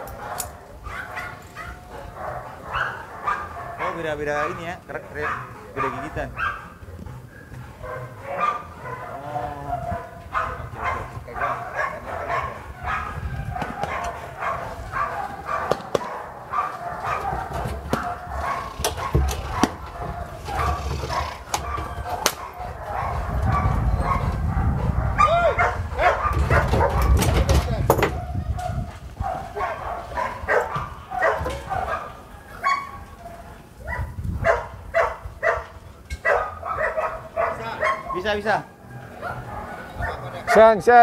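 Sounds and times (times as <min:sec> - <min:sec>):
dog barking: 0:00.0 - 0:27.2, 0:28.1 - 0:41.0.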